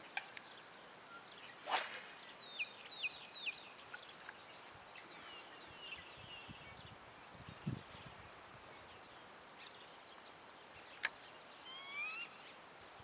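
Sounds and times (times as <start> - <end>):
fishing rod swishing through air: 1.6 - 2.3.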